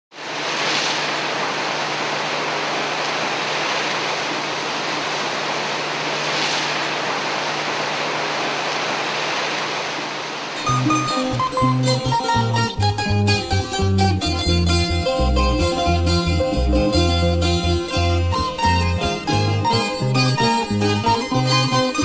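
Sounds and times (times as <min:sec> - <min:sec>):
falling water rushing: 0:00.1 - 0:11.3.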